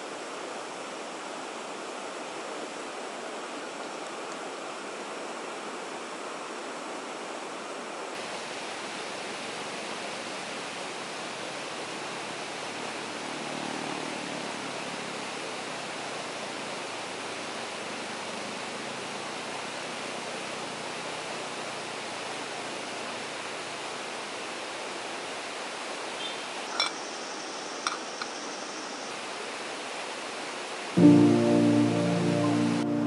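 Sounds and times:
steady hiss: 0:00.0 - 0:33.0
metal spoon clinking on pot: 0:26.8 - 0:27.0, 0:27.9 - 0:28.3.

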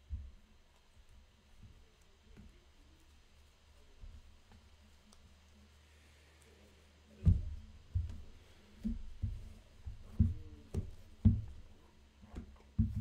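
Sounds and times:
dull thumps and knocks: 0:07.2 - 0:13.0.

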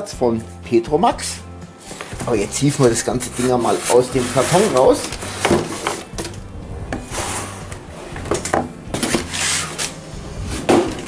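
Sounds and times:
cardboard box rustling and scraping: 0:01.8 - 0:06.1, 0:06.9 - 0:11.0.

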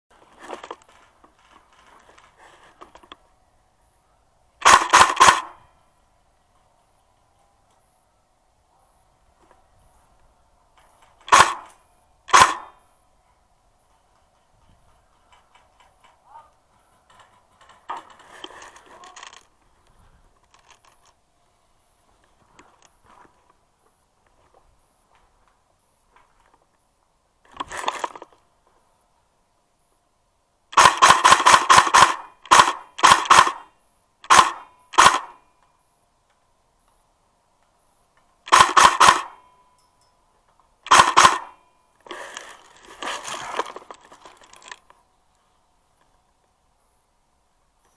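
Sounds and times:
faint noise: 0:00.1 - 0:30.7
airsoft rifle shots: 0:04.6 - 0:05.7, 0:11.2 - 0:12.8, 0:30.7 - 0:35.5, 0:38.4 - 0:39.5, 0:40.8 - 0:42.3.

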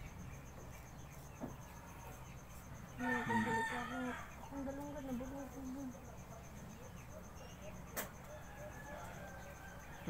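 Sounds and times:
rooster crowing: 0:03.0 - 0:04.5, 0:08.2 - 0:10.0.

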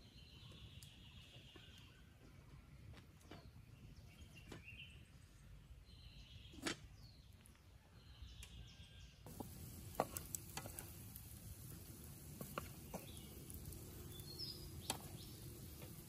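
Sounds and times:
meat and onion sizzling in a pan: 0:09.3 - 0:16.0.

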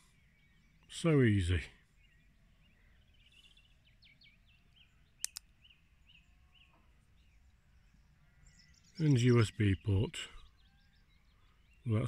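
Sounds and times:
faint birdsong chirps: 0:00.0 - 0:12.0
magnetic cable clicking on: 0:05.2 - 0:05.4.

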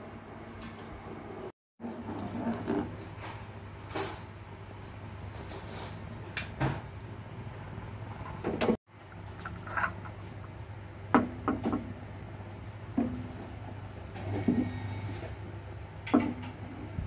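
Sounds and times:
cookware knocking and clinking: 0:11.1 - 0:11.8.

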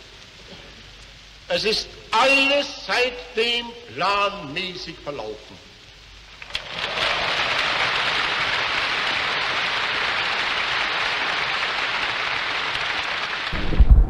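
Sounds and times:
large crowd applauding: 0:06.5 - 0:13.6.

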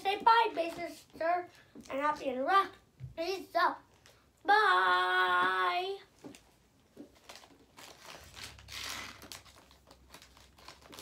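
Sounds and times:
plastic wrapper crinkling: 0:06.2 - 0:11.0.

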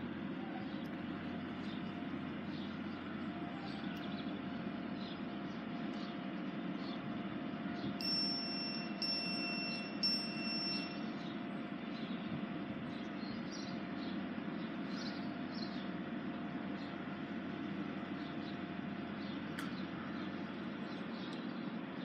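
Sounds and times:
diesel train idling: 0:00.0 - 0:22.0
low tone: 0:07.8 - 0:12.5
short high-pitched beeps: 0:08.0 - 0:11.1.

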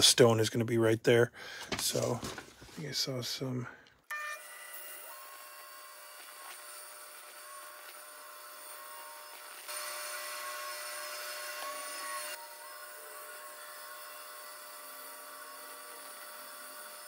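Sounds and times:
bandsaw cutting wood: 0:04.1 - 0:17.0.

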